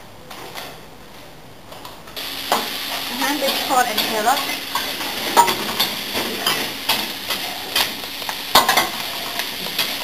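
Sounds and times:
food sizzling in a wok: 0:02.2 - 0:10.0
utensil clanking against wok: 0:02.5 - 0:10.0.

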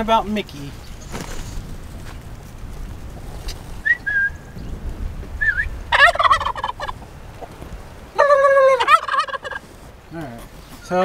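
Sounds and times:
turkey gobbling: 0:03.5 - 0:04.6, 0:05.4 - 0:09.7.

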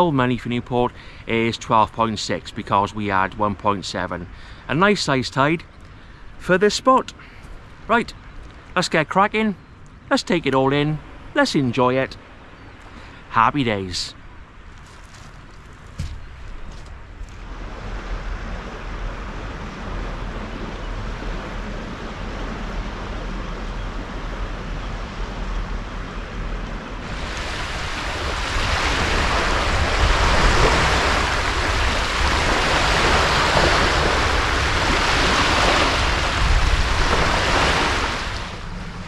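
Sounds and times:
wind rumble on microphone: 0:14.8 - 0:39.0
water rushing: 0:26.8 - 0:39.0.

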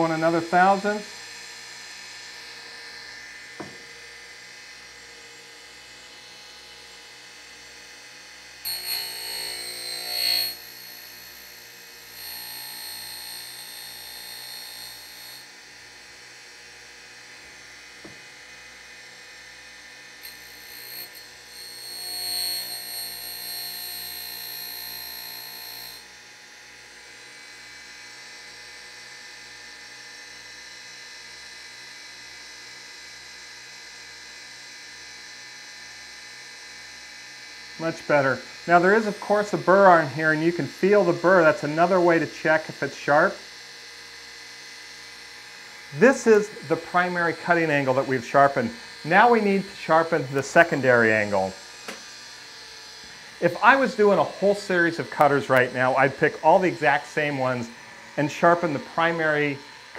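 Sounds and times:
high-pitched grinding: 0:08.7 - 0:11.0, 0:20.3 - 0:25.9, 0:52.6 - 0:59.9
grinder wheel humming: 0:08.7 - 0:15.5, 0:20.2 - 0:26.0, 0:45.6 - 0:59.9.

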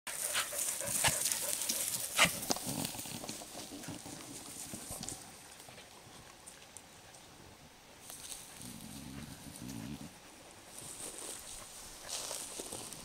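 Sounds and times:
footsteps crunching through dry grass: 0:00.1 - 0:05.4, 0:08.0 - 0:13.0.

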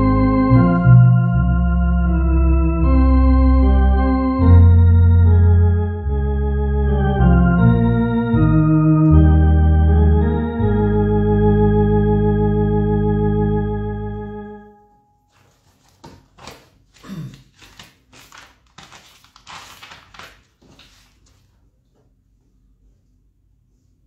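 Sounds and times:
electronic organ playing hymn: 0:00.0 - 0:15.2.

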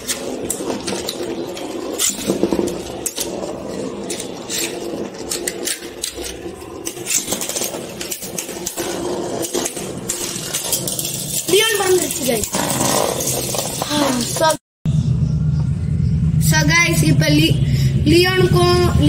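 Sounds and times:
spinning tops whirring: 0:00.0 - 0:14.6.

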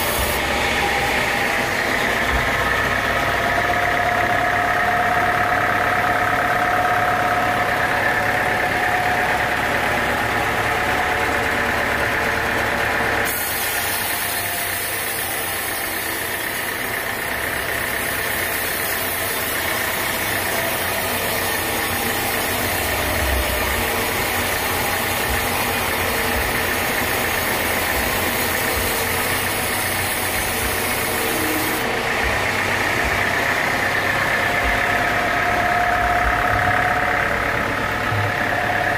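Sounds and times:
band saw machine hum: 0:00.0 - 0:38.9
saw blade cutting wood hiss: 0:13.2 - 0:16.8, 0:17.6 - 0:31.8.

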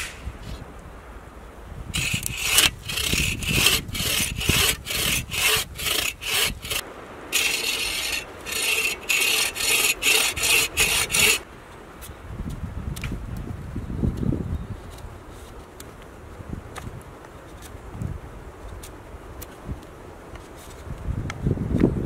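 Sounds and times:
saw cutting wood: 0:02.0 - 0:11.4.

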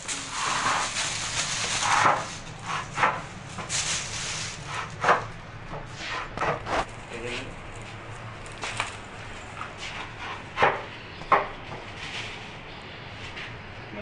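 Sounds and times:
plastic strip scraping on concrete: 0:00.0 - 0:03.0.

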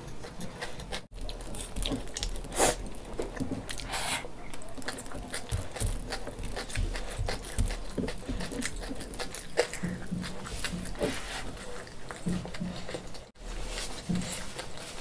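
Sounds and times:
wet chewing: 0:00.0 - 0:15.0.

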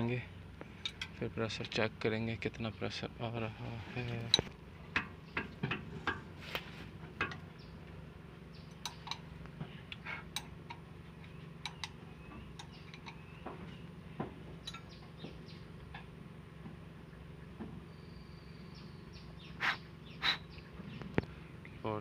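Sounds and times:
steady low hum: 0:00.0 - 0:22.0
light metal clicks and clinks: 0:00.7 - 0:01.8, 0:08.6 - 0:09.3, 0:09.9 - 0:13.3, 0:14.6 - 0:15.0.

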